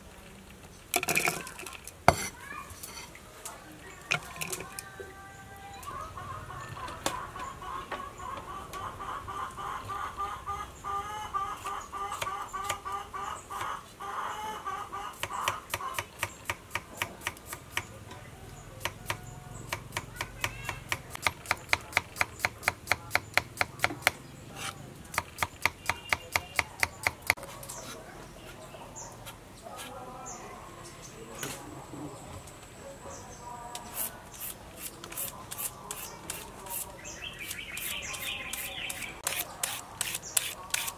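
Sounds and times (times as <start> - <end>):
knife chopping on wooden board: 2.1 - 2.3
hens clucking: 4.1 - 16.2.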